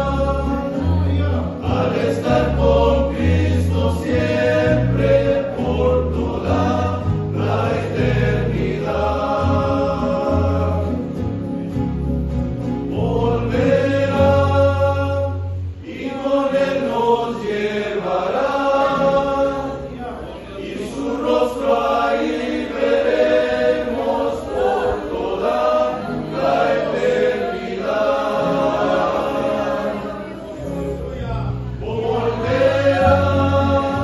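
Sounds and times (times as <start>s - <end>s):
guitar accompaniment: 0.0s - 15.8s, 23.6s - 34.0s
low bass notes: 0.0s - 15.8s
men's choir singing a hymn: 0.0s - 34.0s.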